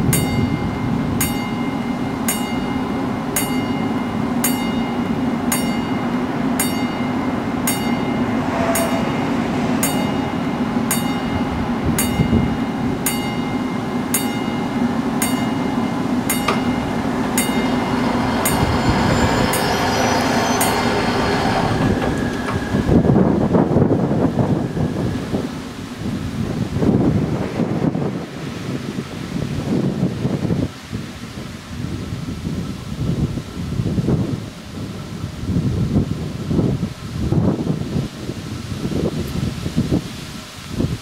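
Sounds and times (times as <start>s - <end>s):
level-crossing warning bell: 0.0s - 25.4s.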